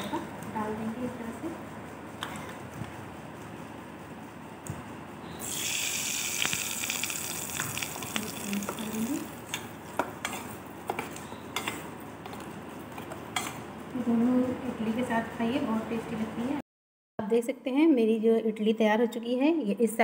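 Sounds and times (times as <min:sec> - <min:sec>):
woman speaking: 0:00.0 - 0:01.6, 0:08.2 - 0:09.3, 0:13.9 - 0:16.6, 0:17.2 - 0:20.0
hot oil sizzling: 0:05.4 - 0:09.8.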